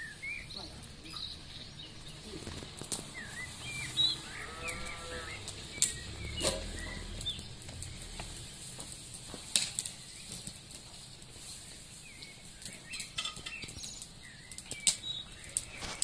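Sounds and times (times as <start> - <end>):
nightingale singing: 0.0 - 8.6, 11.5 - 16.0
drawn-out animal call: 2.2 - 8.1.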